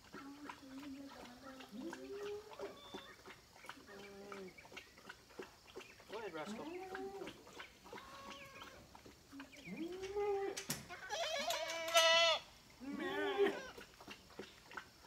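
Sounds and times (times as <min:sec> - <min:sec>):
goats bleating: 0:07.9 - 0:08.8, 0:10.9 - 0:13.8.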